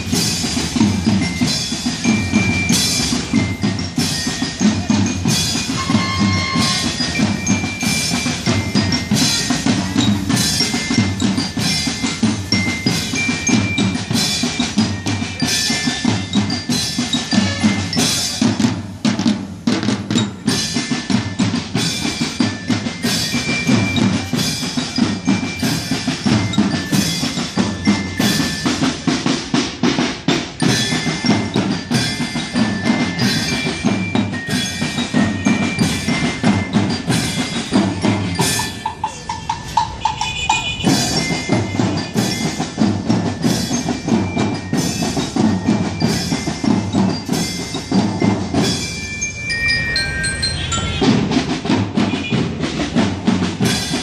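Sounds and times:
high ringing bell notes: 0.0s - 19.2s, 30.6s - 52.6s
marching band drums: 0.0s - 54.0s.

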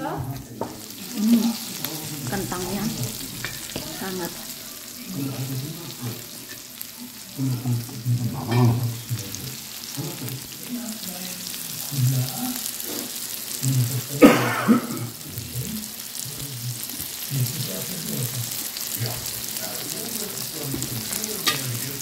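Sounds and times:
meat patties sizzling on grill: 0.0s - 22.0s.

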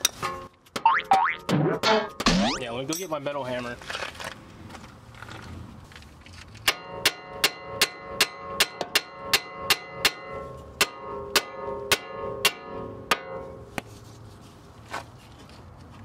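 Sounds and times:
hammer striking metal: 6.7s - 13.5s.

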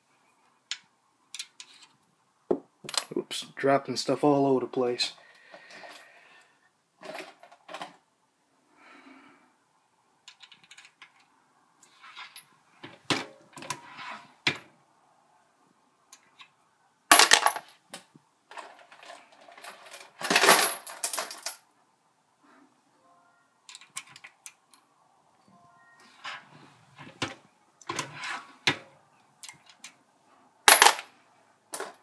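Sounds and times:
brass cases clinking against metal: 30.7s - 31.1s.

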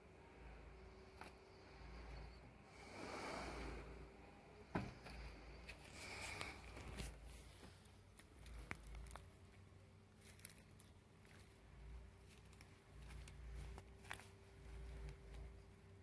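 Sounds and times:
charcoal crackling: 5.8s - 15.6s.

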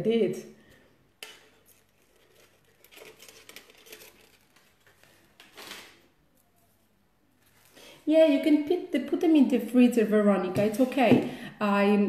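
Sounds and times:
rustling and handling noise: 0.7s - 8.1s.

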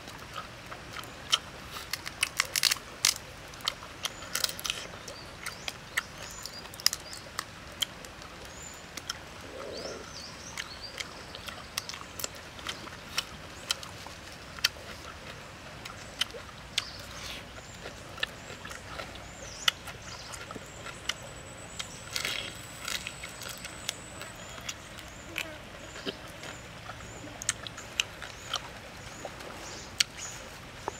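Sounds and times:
prawn shells cracking: 1.9s - 3.2s
faint bird chirps: 8.5s - 12.0s.

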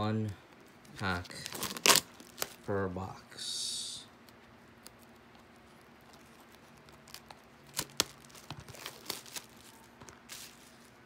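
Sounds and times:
plastic wrap crinkling: 0.9s - 2.7s, 4.8s - 11.0s.

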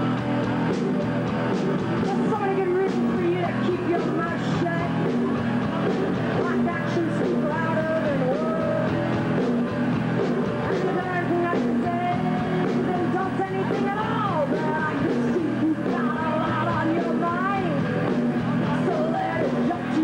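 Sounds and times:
punk rock band playing: 0.0s - 20.0s
woman singing into a microphone: 2.0s - 5.1s, 6.2s - 9.1s, 10.6s - 20.0s.

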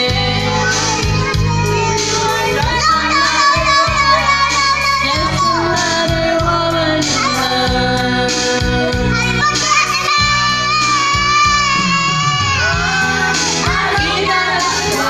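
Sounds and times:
child singing into microphone: 0.0s - 15.0s
karaoke backing music: 0.0s - 15.0s.

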